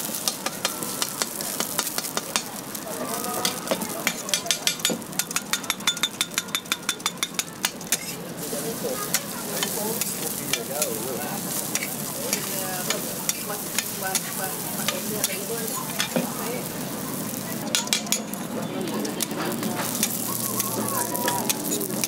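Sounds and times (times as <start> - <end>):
patties sizzling on a griddle: 0.0 - 22.0
metal spatula tapping griddle: 0.2 - 2.6, 3.4 - 8.2, 9.1 - 11.0, 11.6 - 16.4, 17.7 - 18.4, 19.0 - 22.0
spatula clicks on hot plate: 3.5 - 8.1.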